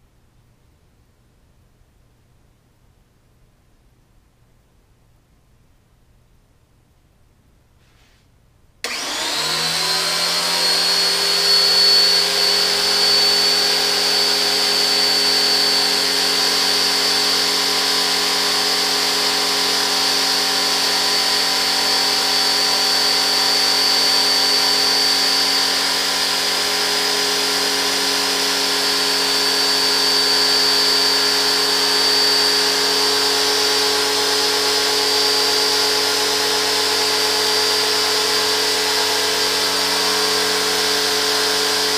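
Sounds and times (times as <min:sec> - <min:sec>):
pressure washer motor whining: 0:08.8 - 0:41.9.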